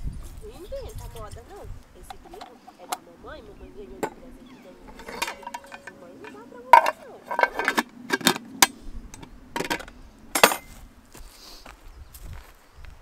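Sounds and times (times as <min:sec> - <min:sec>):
metal cookware clinking: 0:04.0 - 0:08.4, 0:09.6 - 0:10.7.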